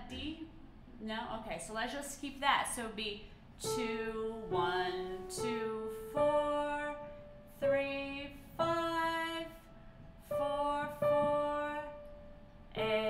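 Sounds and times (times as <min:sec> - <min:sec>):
slow piano melody: 0:03.6 - 0:13.0.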